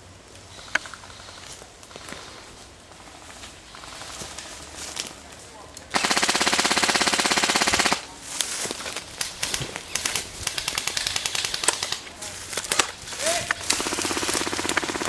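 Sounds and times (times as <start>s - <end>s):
airsoft rifle shots: 5.9s - 8.1s, 9.3s - 12.1s, 12.7s - 15.0s
rapid full-auto burst: 5.9s - 8.1s, 9.4s - 12.1s, 13.1s - 15.0s.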